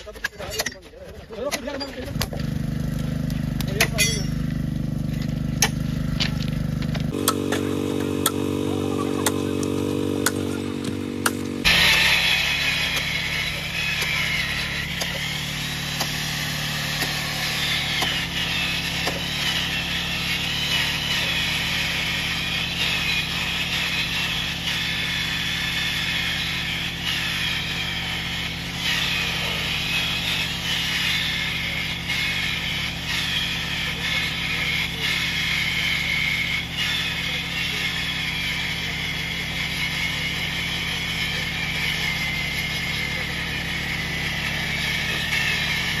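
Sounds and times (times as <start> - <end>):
rail grinder low hum: 2.0 - 46.0
grinding wheel screech on steel: 6.8 - 46.0.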